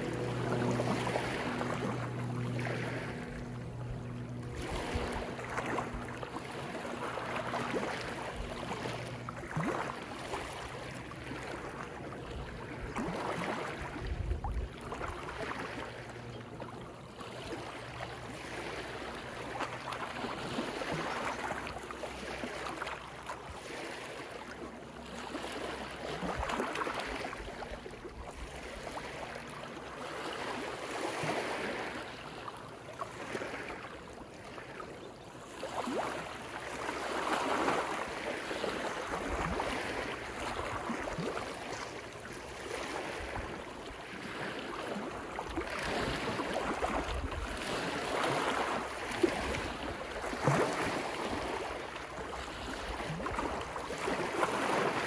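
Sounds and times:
sharp wave splashes: 0:00.0 - 0:14.1
waves lapping on rocks: 0:00.0 - 0:55.0.

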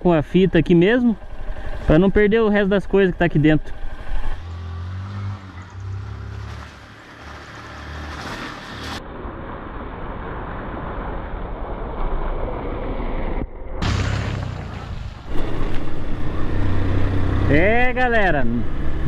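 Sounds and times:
motorcycle engine hum: 0:00.0 - 0:07.3, 0:09.2 - 0:19.0
tyres splashing through puddles: 0:04.4 - 0:09.0.

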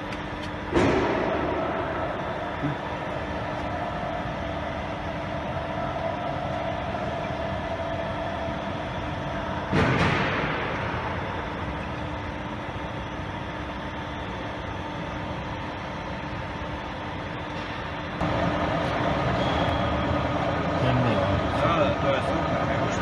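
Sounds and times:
sudden loud burst of noise: 0:00.7 - 0:03.1, 0:09.7 - 0:11.5
lathe humming: 0:01.6 - 0:09.8, 0:11.0 - 0:23.0.

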